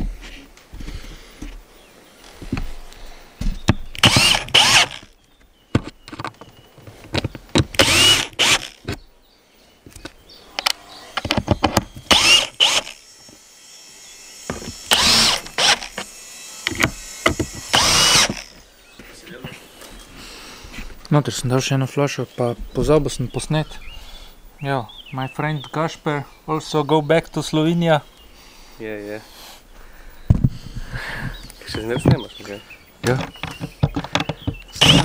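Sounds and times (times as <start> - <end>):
drill motor whine: 4.0 - 5.2, 7.7 - 8.8, 10.6 - 18.7, 34.4 - 35.0
handling clicks and knocks: 5.7 - 7.9, 31.4 - 35.0.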